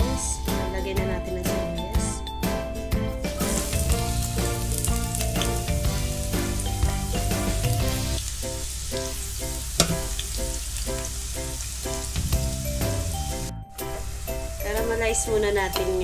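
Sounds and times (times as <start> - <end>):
onion sizzling in hot oil: 3.3 - 16.0.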